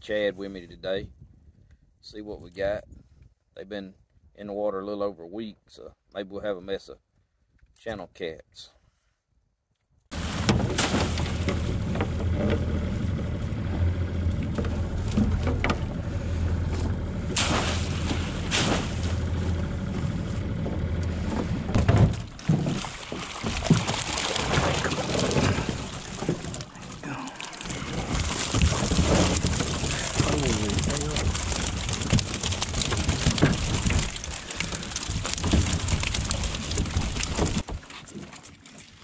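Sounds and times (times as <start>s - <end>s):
water splashing and pouring: 10.1s - 13.0s, 17.3s - 19.6s, 21.7s - 39.0s
outboard motor idling: 10.1s - 37.7s.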